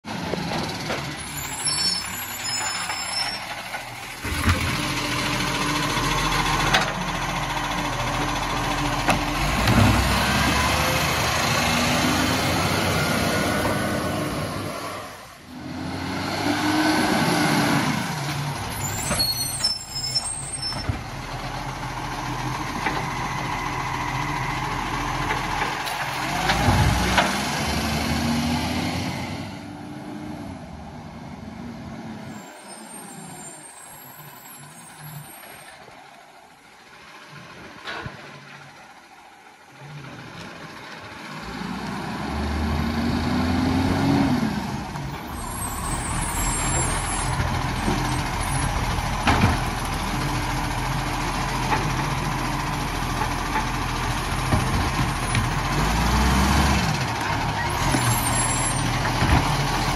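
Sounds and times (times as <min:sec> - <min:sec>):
diesel engine revving: 0:00.1 - 0:59.9.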